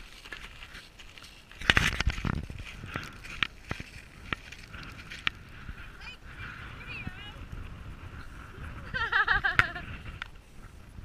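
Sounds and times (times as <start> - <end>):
rock clicks and knocks: 0.0 - 5.4
footsteps crunching on rock: 0.0 - 5.5.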